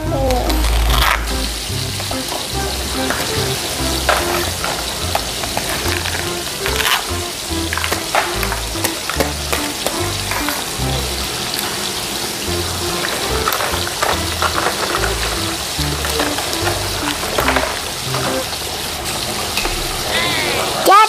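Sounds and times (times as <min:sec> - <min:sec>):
background music with bass line: 0:00.0 - 0:11.3
frying sizzle: 0:00.0 - 0:21.0
toy pieces tapping metal wok: 0:00.4 - 0:11.0, 0:12.5 - 0:18.5.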